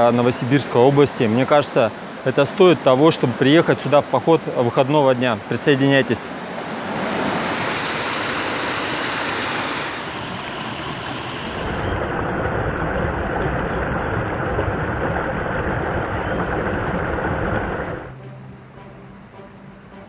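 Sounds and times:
waterfall rushing: 0.0s - 18.2s.

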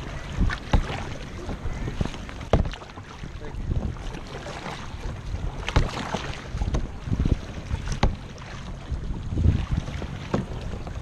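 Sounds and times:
sharp splashes: 0.0s - 6.8s
kayak paddle strokes: 0.0s - 11.0s
water slapping against hull: 0.0s - 11.0s
wind rumble on microphone: 0.0s - 11.0s.

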